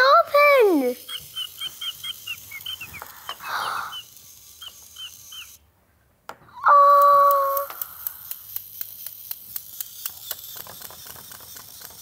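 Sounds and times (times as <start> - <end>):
toy chick cheeping: 1.0 - 5.6.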